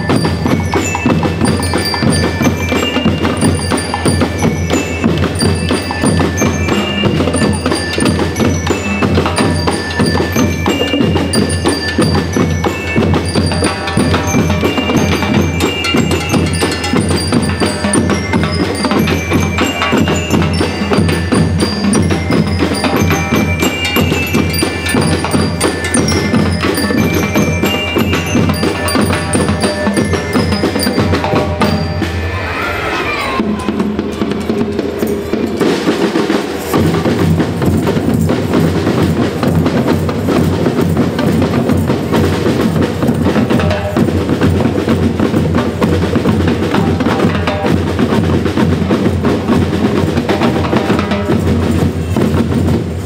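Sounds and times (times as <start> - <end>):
bell lyre melody: 0.0 - 32.3
marching drums: 0.0 - 32.6, 33.2 - 53.0.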